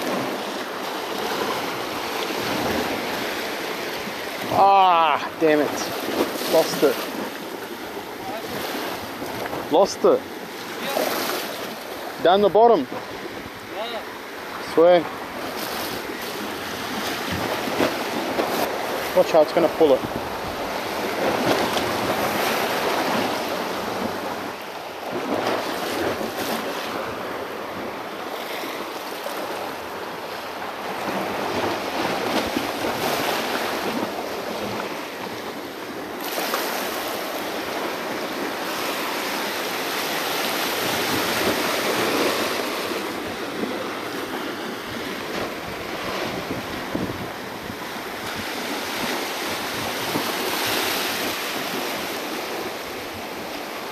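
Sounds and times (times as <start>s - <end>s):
small waves breaking over rocks: 0.0s - 53.9s
wind buffeting microphone: 19.9s - 28.0s, 40.5s - 53.6s.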